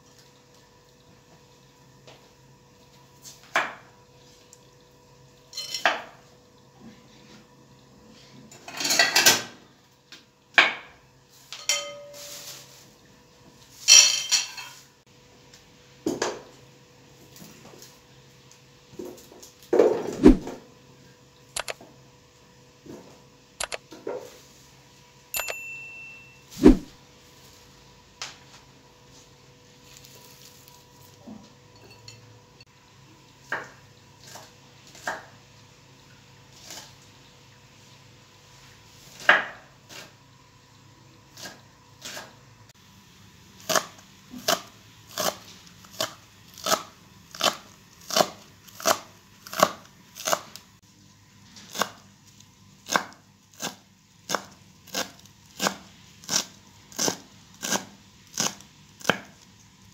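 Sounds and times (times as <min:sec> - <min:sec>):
knife chopping on wooden board: 0:19.8 - 0:20.6, 0:26.6 - 0:26.9.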